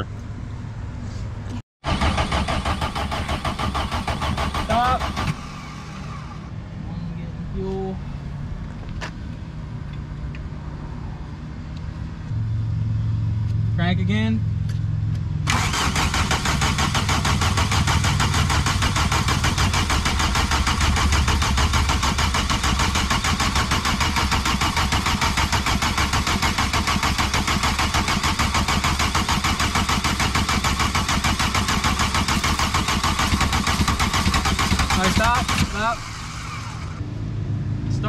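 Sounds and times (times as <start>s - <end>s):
starter motor cranking diesel engine: 1.8s - 6.5s, 15.5s - 37.0s.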